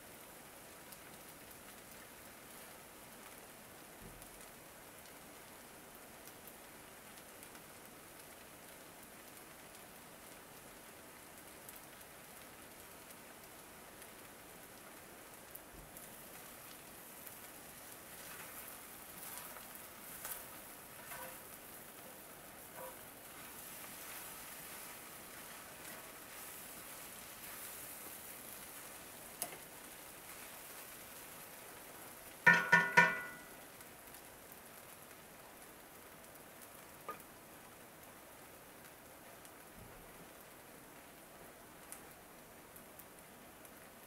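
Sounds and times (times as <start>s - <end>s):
noodles sizzling in a skillet: 0.0s - 44.0s
wooden spatula scraping: 18.1s - 21.6s, 22.8s - 28.2s.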